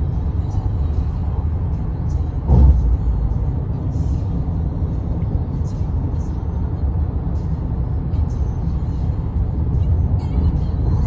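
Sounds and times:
tyre road noise rumble: 0.0 - 11.0
thump: 2.5 - 3.0.

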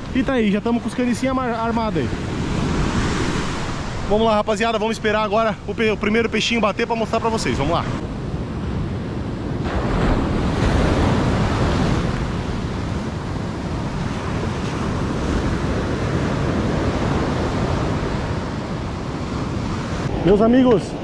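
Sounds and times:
ocean surf breaking: 0.0 - 21.0
wind on microphone: 7.6 - 21.0.

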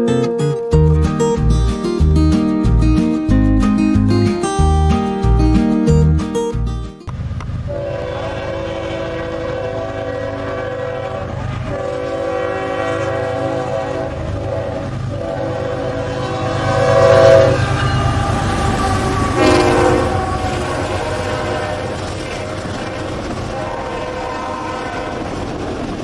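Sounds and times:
train rumbling past: 7.1 - 26.0
locomotive air horn blasts: 7.7 - 22.0, 23.5 - 25.2.

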